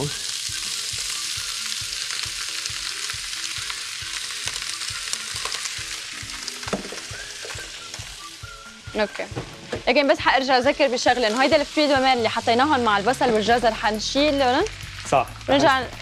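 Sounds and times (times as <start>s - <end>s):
seafood sizzling in a frying pan: 0.0s - 16.0s.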